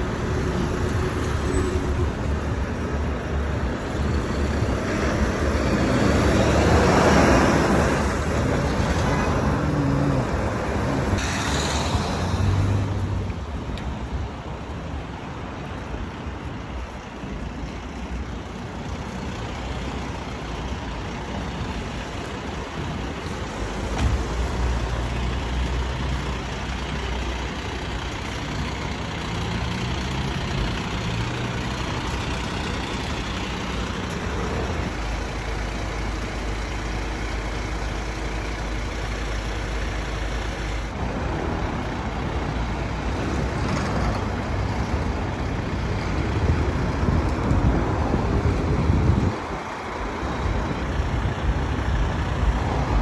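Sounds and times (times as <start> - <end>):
street traffic noise: 0.0 - 53.0
diesel engine idling: 48.8 - 53.0.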